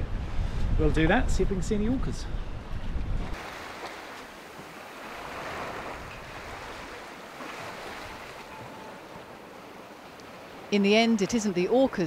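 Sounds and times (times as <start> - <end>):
wind: 0.0 - 12.0
water splashing along hull: 3.2 - 12.0.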